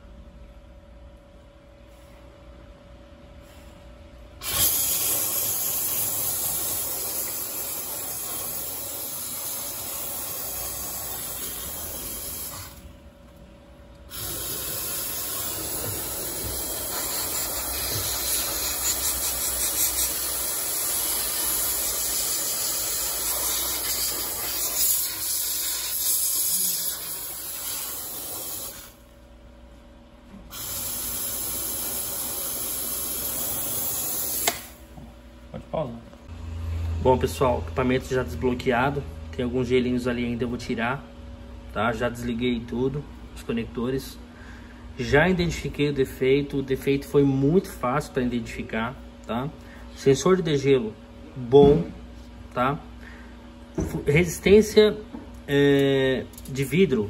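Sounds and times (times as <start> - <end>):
steam cleaner hissing: 4.4 - 12.8, 14.1 - 29.0, 30.5 - 34.8.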